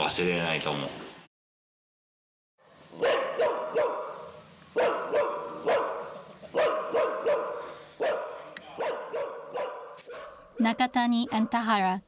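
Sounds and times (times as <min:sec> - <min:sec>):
dog barking: 0:02.9 - 0:11.8.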